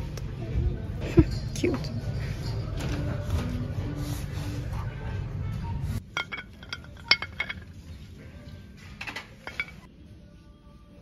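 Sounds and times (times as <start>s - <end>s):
ornaments clinking on metal hook: 6.2s - 7.8s.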